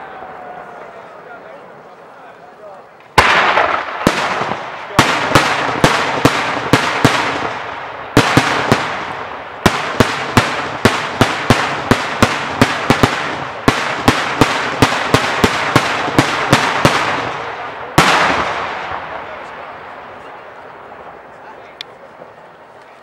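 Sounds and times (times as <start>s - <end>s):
fireworks bangs with echo: 3.1s - 21.3s.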